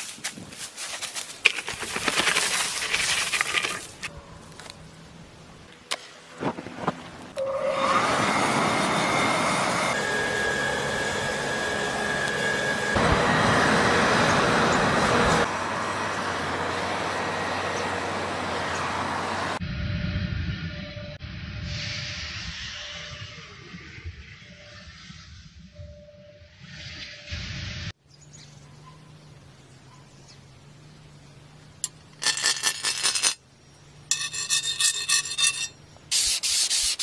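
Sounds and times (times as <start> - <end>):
dry straw rustling and crackling: 0.0 - 4.8
blower air rushing: 7.4 - 15.7
faint high whine: 19.6 - 28.3.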